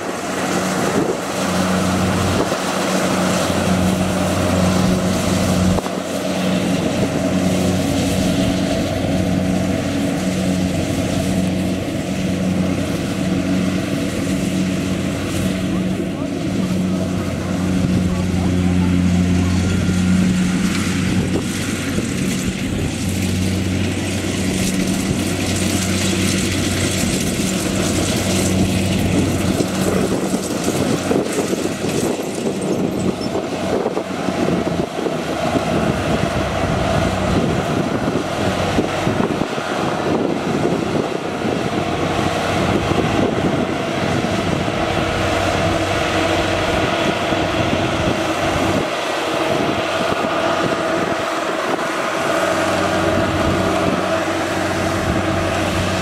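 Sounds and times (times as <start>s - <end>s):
combine harvester engine drone: 0.0s - 56.0s
cutting and threshing gear: 19.8s - 36.0s.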